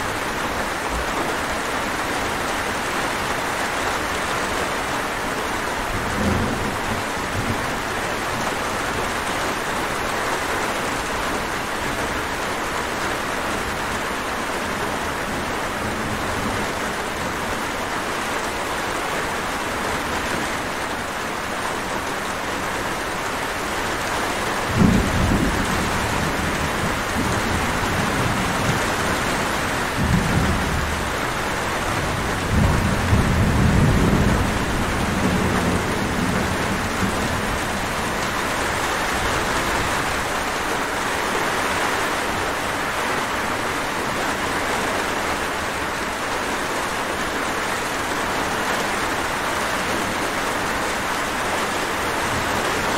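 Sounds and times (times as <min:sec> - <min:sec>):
heavy rain: 0:00.0 - 0:52.9
thunder rumbling: 0:24.6 - 0:40.6.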